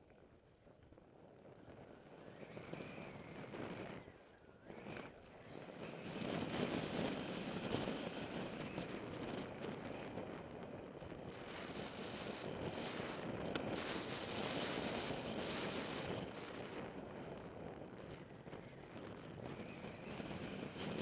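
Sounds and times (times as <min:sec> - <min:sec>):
wind on microphone: 0:01.0 - 0:21.0.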